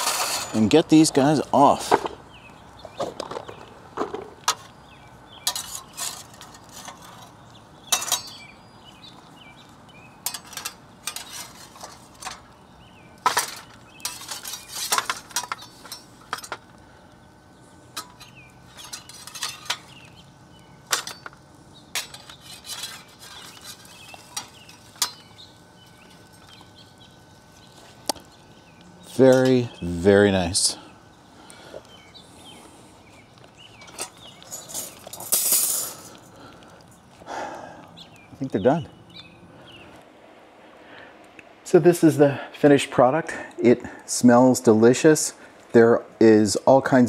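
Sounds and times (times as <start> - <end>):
metal utensil clinking on grill grate: 0.0 - 1.4, 5.4 - 8.6, 9.9 - 12.6, 13.2 - 16.7, 17.9 - 20.2, 20.8 - 25.4, 29.1 - 29.8, 33.8 - 36.2.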